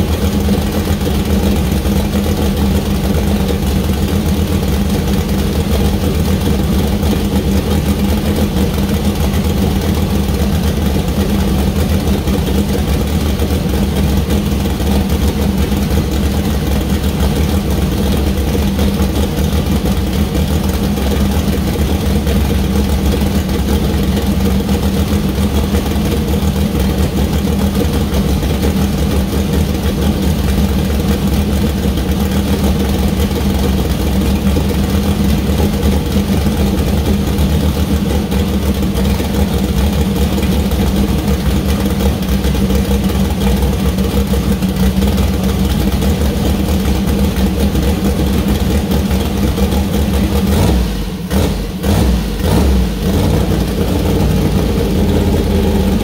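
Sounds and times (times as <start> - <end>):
race engine running: 0.0 - 56.0.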